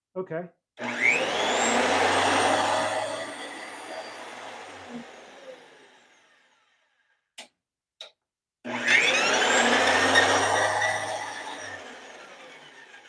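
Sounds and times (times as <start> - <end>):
planer motor spinning: 0.8 - 6.8, 8.7 - 13.0.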